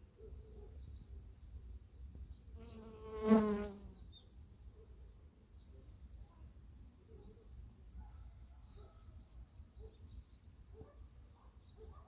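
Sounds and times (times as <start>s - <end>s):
honeybee buzzing past: 2.6s - 3.9s.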